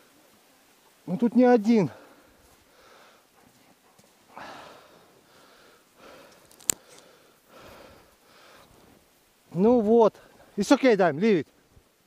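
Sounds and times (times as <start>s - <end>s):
person breathing hard: 1.9s - 3.4s, 4.3s - 8.8s.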